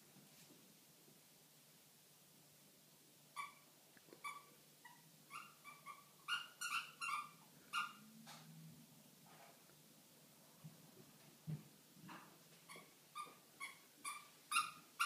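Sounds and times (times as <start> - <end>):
puppy yelping: 3.4 - 8.0, 12.7 - 15.0.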